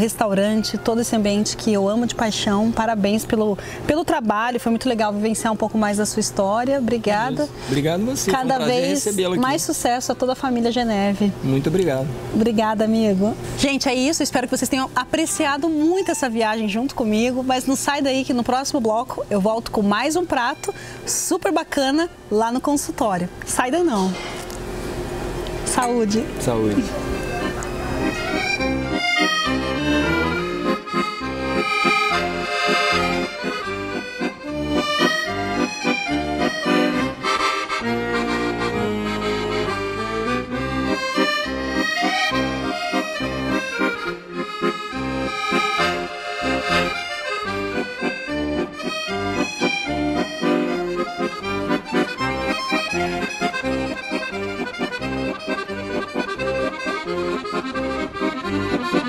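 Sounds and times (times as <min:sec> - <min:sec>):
instrumental music with bass pulse: 0:27.0 - 0:59.0.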